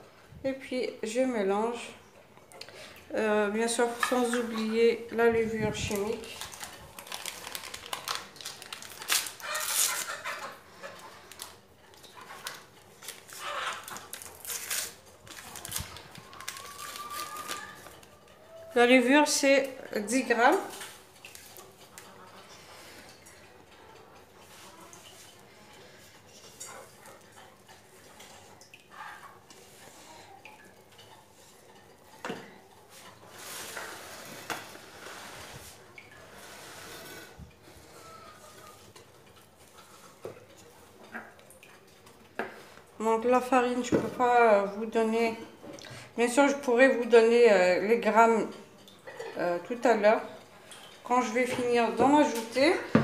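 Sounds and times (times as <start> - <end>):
paper sachet crinkling and tearing: 5.9 - 10.2, 12.4 - 18.1.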